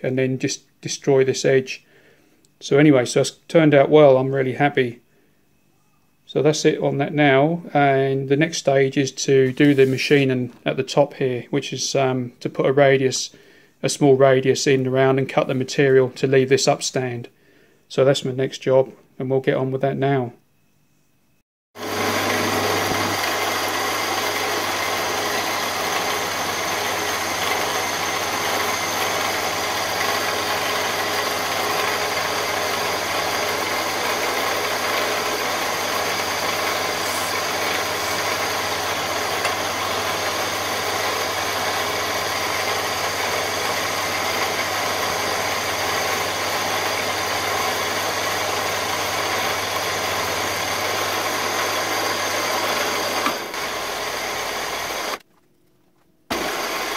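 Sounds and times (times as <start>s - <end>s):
milling machine whirring: 21.8s - 55.2s, 56.3s - 56.9s.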